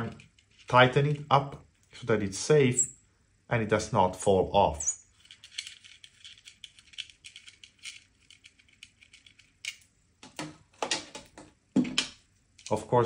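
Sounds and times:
plastic clicks and rattles: 5.2 - 12.8.

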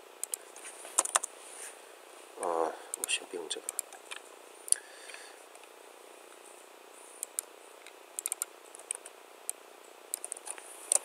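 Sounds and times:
faint steady hiss: 0.0 - 11.0
keyboard and mouse clicks: 0.2 - 0.4, 1.0 - 1.3, 2.9 - 4.2, 7.2 - 11.0.

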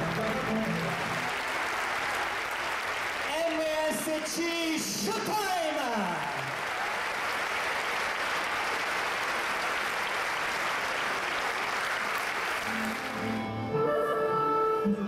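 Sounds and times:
audience applauding: 0.0 - 14.0
orchestra playing: 12.6 - 15.0.

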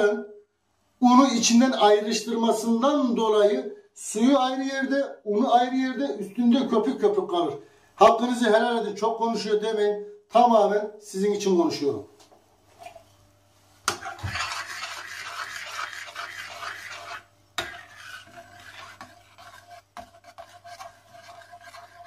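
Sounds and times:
ladle stirring soup in pot: 13.9 - 22.0.

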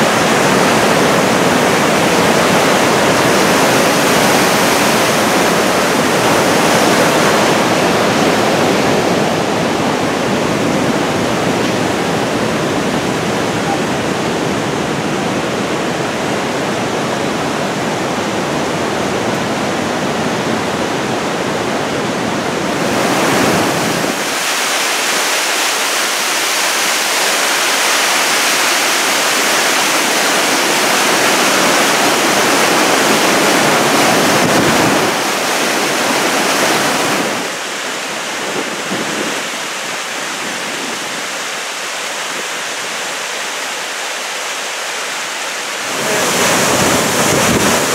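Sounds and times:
waterfall and stream rushing: 0.0 - 47.9.

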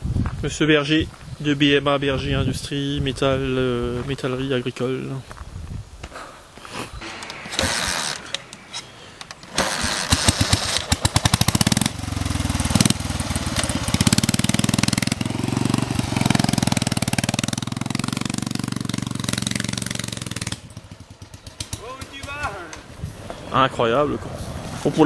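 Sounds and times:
motorcycle engine starting and revving: 7.0 - 23.4.

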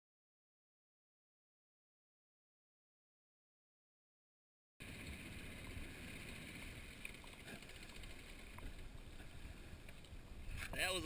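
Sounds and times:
low rumble of wind and water: 4.8 - 11.0.

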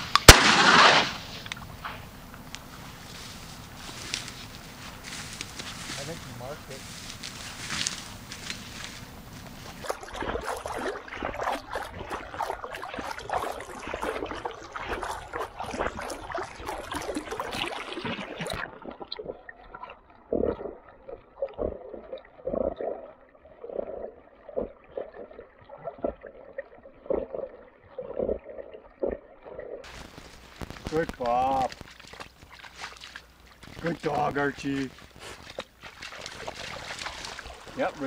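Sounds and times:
water splashing and sloshing: 0.0 - 38.0
muffled gurgling slosh: 9.6 - 38.0.

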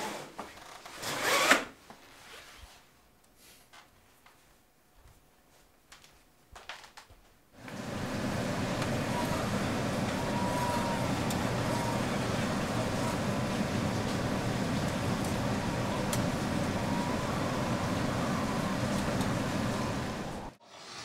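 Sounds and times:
faint clicks and rustles: 1.9 - 20.5
outdoor city noise: 7.6 - 20.6.

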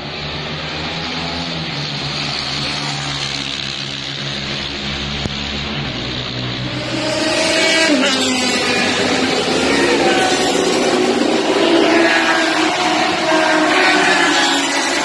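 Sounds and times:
vehicle engine running: 2.1 - 15.0.

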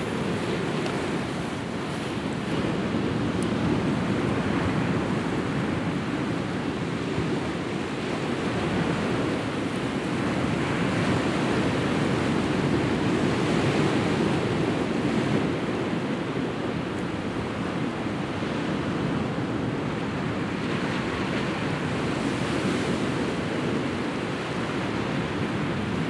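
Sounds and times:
sea waves breaking on rocks: 0.0 - 6.0.

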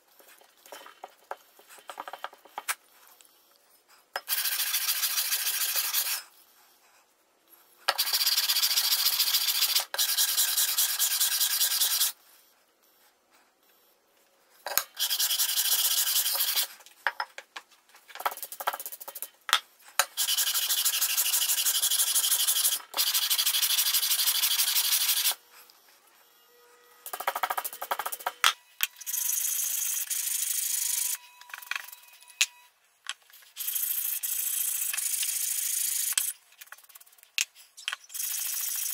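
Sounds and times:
metal scraping on sandpaper: 4.3 - 6.3, 8.0 - 12.2, 14.9 - 16.8, 20.2 - 31.2, 33.3 - 38.9
stiff brush sweeping paper: 4.3 - 7.0, 8.0 - 13.8, 15.0 - 16.8, 19.8 - 26.3, 33.3 - 38.9.

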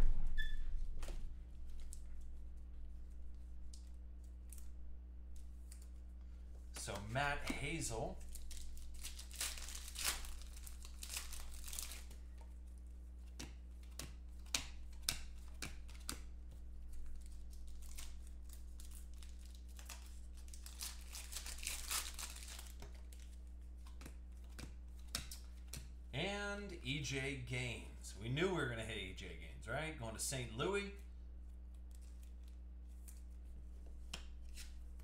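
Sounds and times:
steady low hum: 0.0 - 35.0
foil wrappers crinkling and tearing: 6.9 - 12.4, 13.8 - 25.6
cards clicking: 13.2 - 16.3.

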